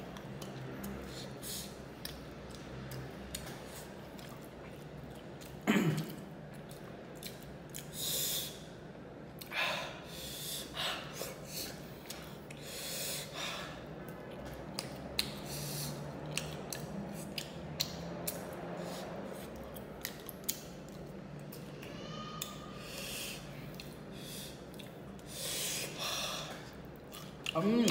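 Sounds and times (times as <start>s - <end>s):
chewing and mouth clicks: 0.0s - 8.0s, 11.8s - 12.6s, 14.0s - 21.8s, 23.6s - 25.4s, 26.6s - 27.9s
person breathing hard and sniffing: 9.5s - 13.9s, 15.3s - 16.1s, 22.8s - 26.8s.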